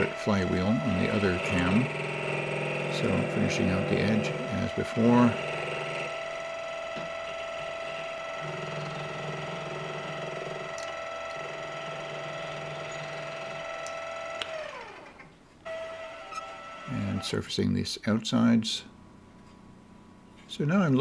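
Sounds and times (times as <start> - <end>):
cutting tool on metal: 0.0 - 6.2
lathe motor whine: 0.0 - 17.4.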